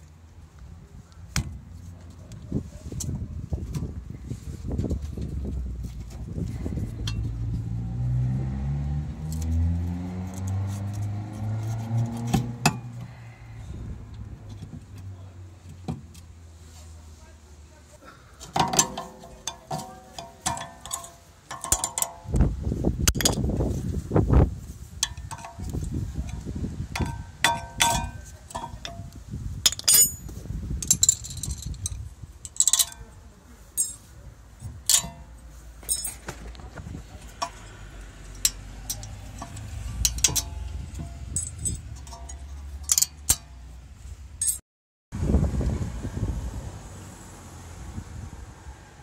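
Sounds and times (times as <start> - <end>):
low handling rumbles: 1.3 - 16.4, 18.5 - 44.6
metal clinks and scrapes: 4.3 - 8.0, 9.2 - 13.5, 18.4 - 22.4, 23.0 - 23.9, 24.7 - 44.6.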